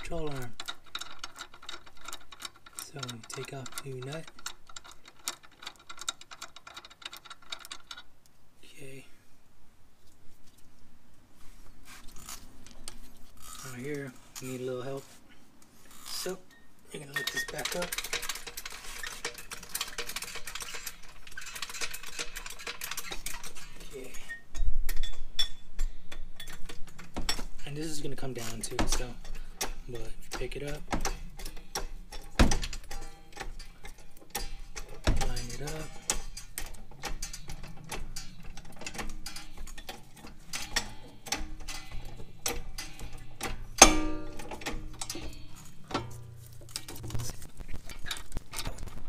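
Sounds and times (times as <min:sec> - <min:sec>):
metal parts and tools clinking: 0:00.0 - 0:08.1, 0:15.9 - 0:49.0
ringing metal clink: 0:39.2 - 0:46.3.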